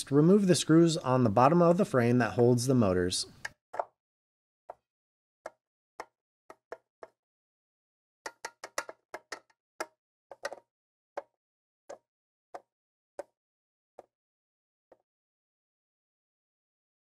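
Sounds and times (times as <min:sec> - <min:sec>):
clicks and taps on metal frame: 0:08.3 - 0:10.6.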